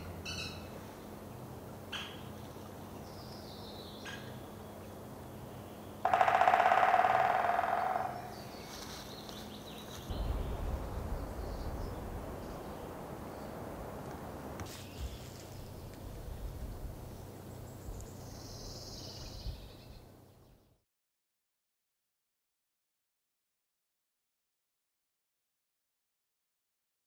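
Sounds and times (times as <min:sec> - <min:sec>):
woodpecker drumming: 0:06.0 - 0:08.6
low rumble: 0:10.0 - 0:17.2.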